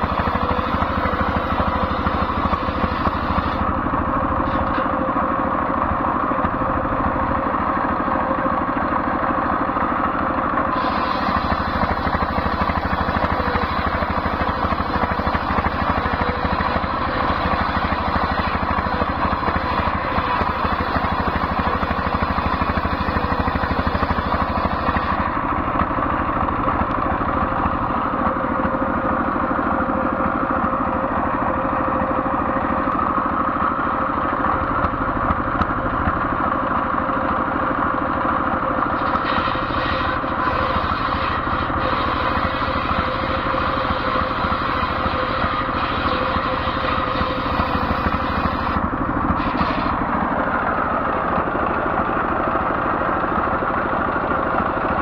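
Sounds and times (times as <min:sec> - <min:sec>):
circular saw blade whine: 0:00.0 - 0:55.0
diesel engine running: 0:00.0 - 0:55.0
saw ripping through wood: 0:39.0 - 0:50.3.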